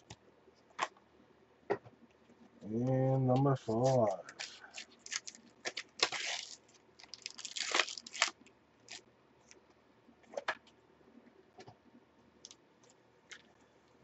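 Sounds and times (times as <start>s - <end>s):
cards rustling and tapping: 3.8s - 6.5s
wrapper crinkling and tearing: 3.8s - 9.0s.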